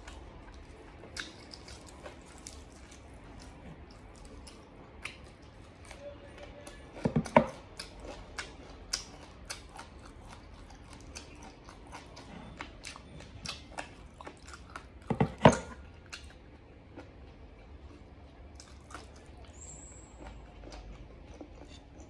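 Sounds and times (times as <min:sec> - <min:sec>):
wet chewing and mouth smacks: 0:00.1 - 0:05.9, 0:06.7 - 0:15.2.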